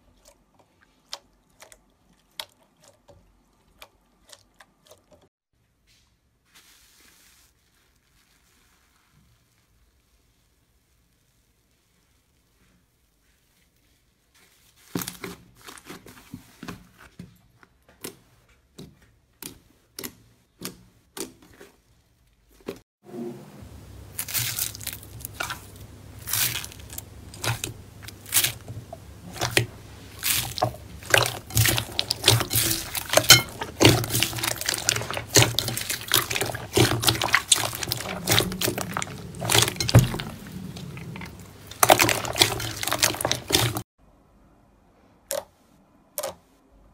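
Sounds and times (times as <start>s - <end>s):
slime crackling and squelching: 6.5s - 17.1s, 24.0s - 43.9s.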